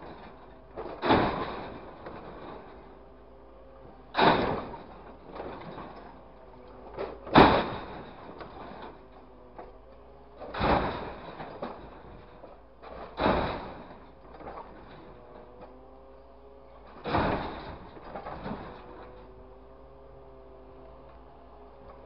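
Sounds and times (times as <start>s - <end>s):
scrap crashing into truck bed: 0.0s - 3.0s, 4.1s - 9.7s, 10.4s - 15.7s, 16.8s - 19.3s.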